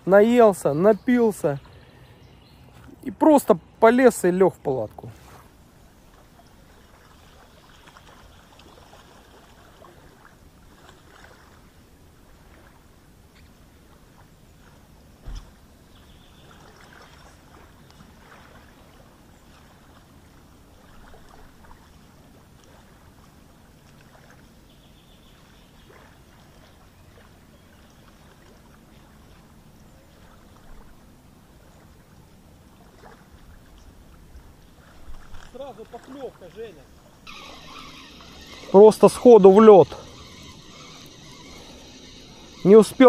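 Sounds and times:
water lapping gently: 0.0 - 43.0
low thump: 15.2 - 15.6.

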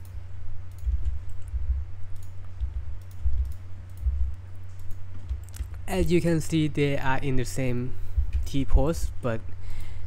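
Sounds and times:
computer keyboard clicks: 0.0 - 4.2, 4.8 - 5.8
mouse clicks: 0.0 - 4.2
dull low thuds: 0.8 - 4.4, 8.1 - 8.5.

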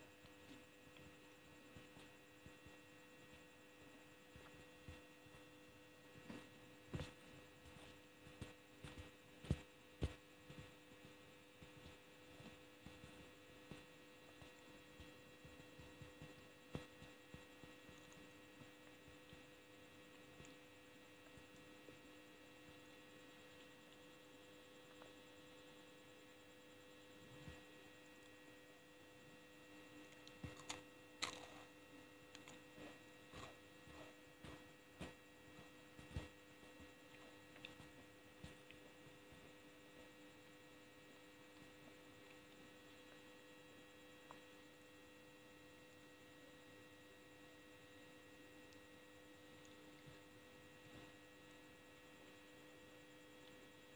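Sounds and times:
faint electrical hum: 0.0 - 53.9
chewing gummy candy: 30.1 - 32.7.

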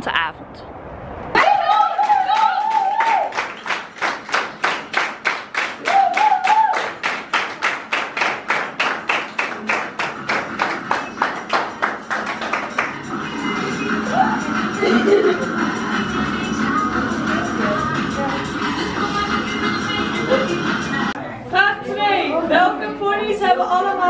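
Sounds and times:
faint dance music: 1.4 - 24.0
rhythmic hand-clapping: 1.6 - 21.2.

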